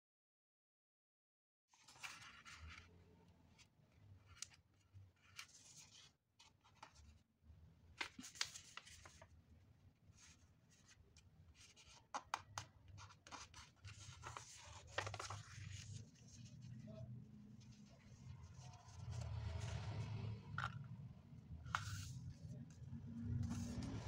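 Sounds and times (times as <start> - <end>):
paper rustling and crinkling: 1.7 - 2.9, 8.0 - 9.3, 12.9 - 16.8
paper crackles: 13.1 - 16.4.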